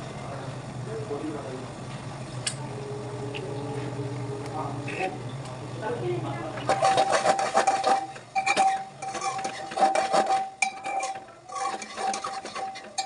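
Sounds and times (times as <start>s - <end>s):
metal kitchenware clinking and scraping: 6.7s - 13.0s.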